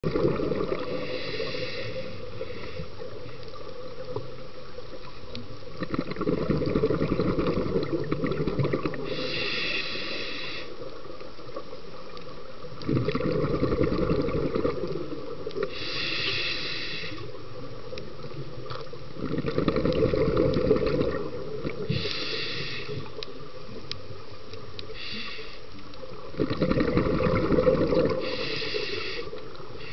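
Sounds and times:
bubbling exhalation underwater: 0:00.0 - 0:01.0, 0:05.8 - 0:09.1, 0:12.8 - 0:15.1, 0:19.2 - 0:21.9, 0:26.4 - 0:28.3
hissing regulator inhalations: 0:00.9 - 0:03.1, 0:09.0 - 0:10.9, 0:15.6 - 0:17.4, 0:21.8 - 0:23.2, 0:24.9 - 0:25.8, 0:28.2 - 0:29.9.

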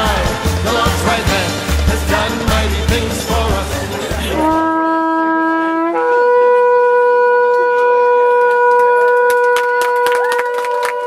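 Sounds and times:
shofar blast: 0:04.2 - 0:11.0.

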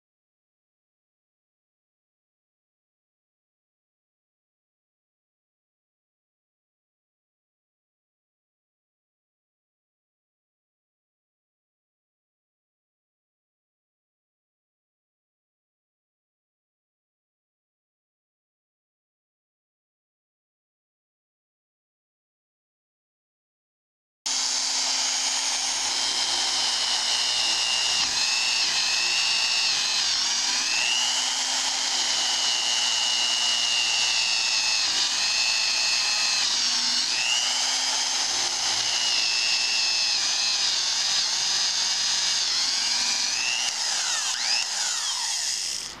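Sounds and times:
electric drill whining into wood: 0:24.3 - 0:46.0.

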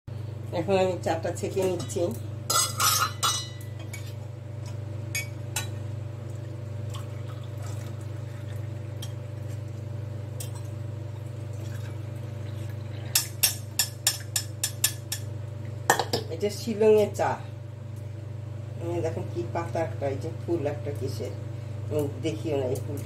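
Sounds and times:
water pump humming: 0:03.6 - 0:15.9
tea pouring into cups: 0:06.2 - 0:09.9, 0:10.5 - 0:13.4.

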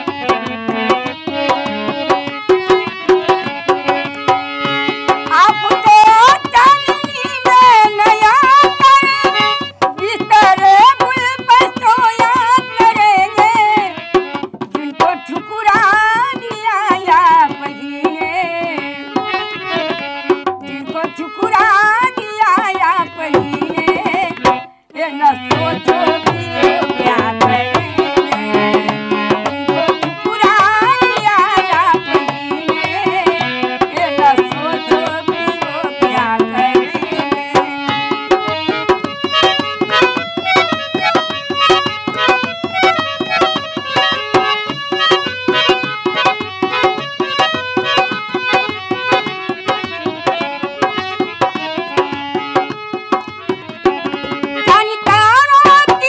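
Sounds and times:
dholak drumming: 0:00.0 - 0:56.0
elderly woman singing: 0:05.3 - 0:09.3, 0:10.0 - 0:14.0, 0:14.8 - 0:18.9, 0:20.8 - 0:28.9, 0:29.6 - 0:38.0.

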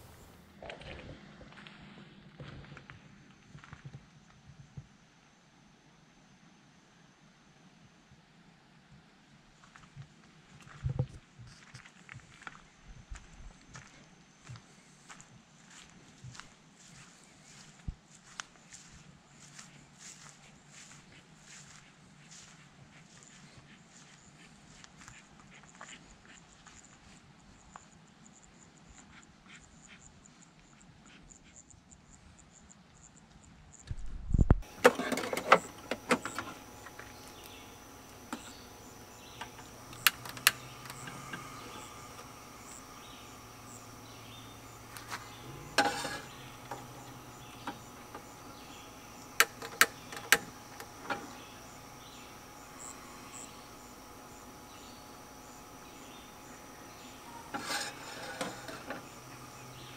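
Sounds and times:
high insect chirring: 0:34.6 - 0:58.1
sharp knocks and clicks: 0:49.4 - 0:51.4.

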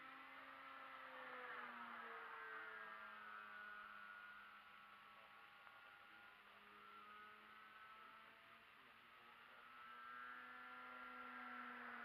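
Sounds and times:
model plane electric motor whine: 0:00.0 - 0:12.0.

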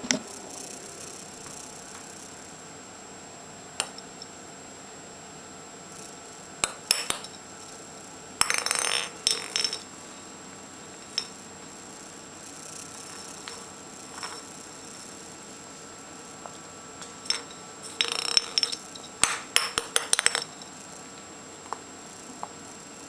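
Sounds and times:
metal ball toy clinking and rattling: 0:08.4 - 0:09.8, 0:13.2 - 0:14.5, 0:17.3 - 0:19.4.

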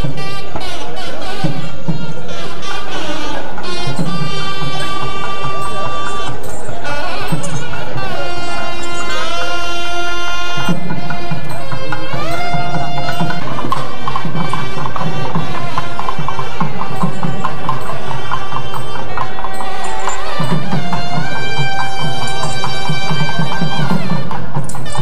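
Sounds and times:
sliding melody line: 0:00.0 - 0:25.0
hand drum rhythm: 0:09.6 - 0:25.0.

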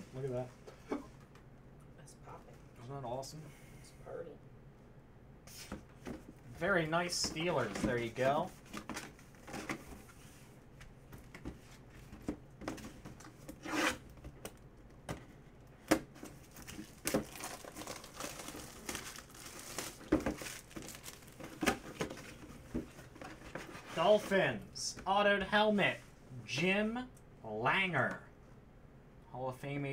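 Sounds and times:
cardboard crinkling and tearing: 0:16.4 - 0:22.5.

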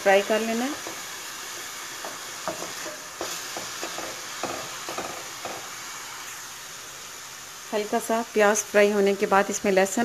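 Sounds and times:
onions sizzling in hot oil: 0:00.0 - 0:10.0
wooden spatula scraping pan: 0:00.7 - 0:05.8.

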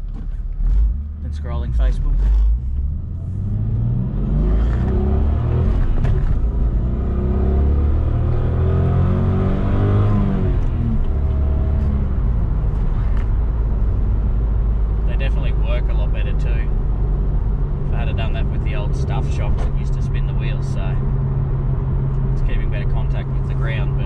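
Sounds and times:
car engine accelerating: 0:00.0 - 0:24.0
road rumble: 0:00.0 - 0:24.0.

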